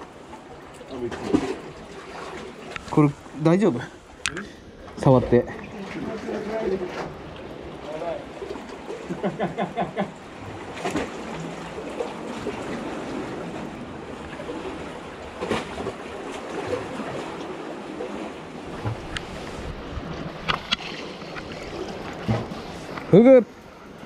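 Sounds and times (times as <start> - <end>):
sea surf washing: 0.0 - 24.0
wind on microphone: 18.6 - 23.0.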